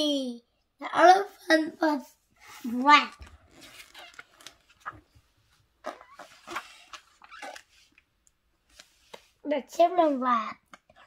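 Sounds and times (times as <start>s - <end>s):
paper page rustling: 2.4s - 5.6s.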